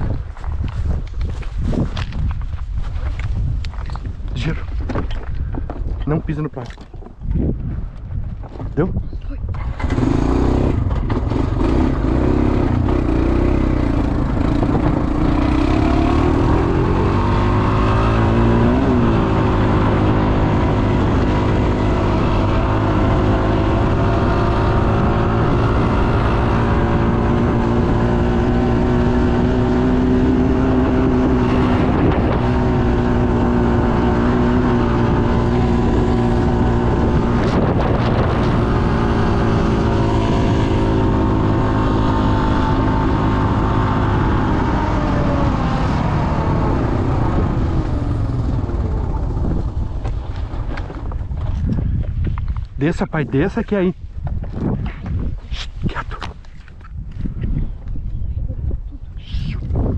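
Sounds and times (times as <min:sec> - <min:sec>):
motorcycle engine running: 0:09.5 - 0:52.6.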